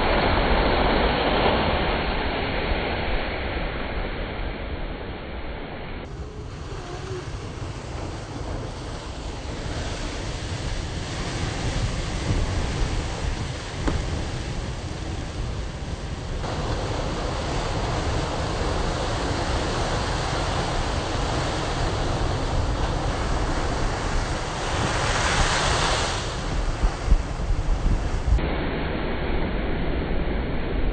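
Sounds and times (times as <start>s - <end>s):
wind buffeting microphone: 6.0s - 30.9s
ocean surf against rocks: 6.1s - 28.4s.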